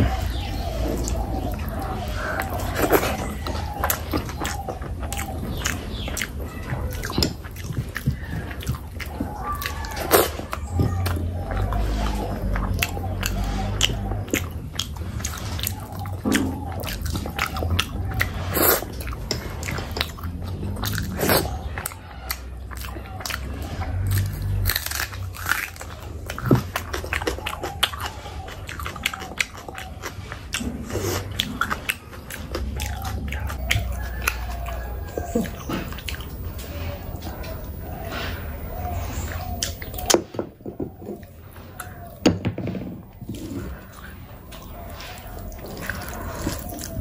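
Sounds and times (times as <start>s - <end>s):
person biting and chewing food: 0.0s - 40.3s, 43.0s - 47.0s
steady low hum: 30.6s - 42.2s.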